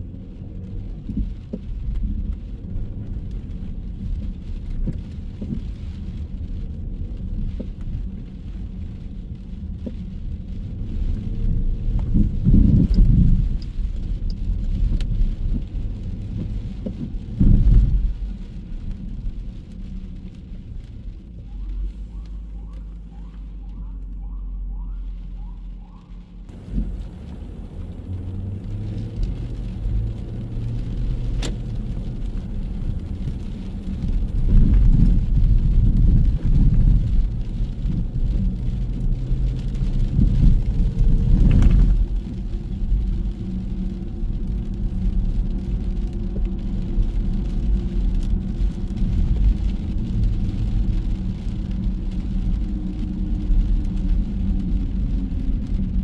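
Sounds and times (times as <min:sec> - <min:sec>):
traffic rumbling: 0:00.0 - 0:56.0.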